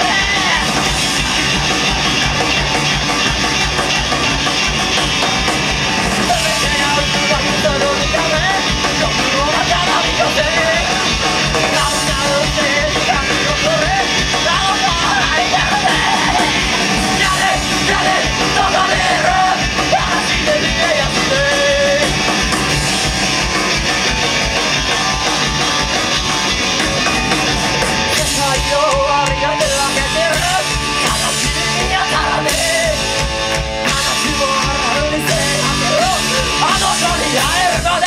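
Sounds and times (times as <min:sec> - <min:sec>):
man singing: 0:00.0 - 0:01.0, 0:06.2 - 0:22.2, 0:28.1 - 0:33.2, 0:33.8 - 0:38.0
live rock band playing: 0:00.0 - 0:38.0.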